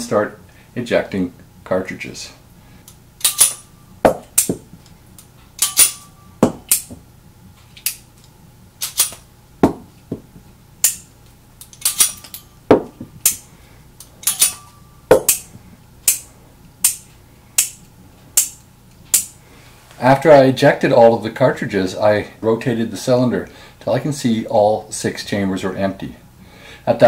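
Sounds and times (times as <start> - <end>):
revolver metallic clicks: 2.8 - 3.7, 5.2 - 7.0, 7.8 - 9.3, 10.8 - 12.5, 14.0 - 19.4.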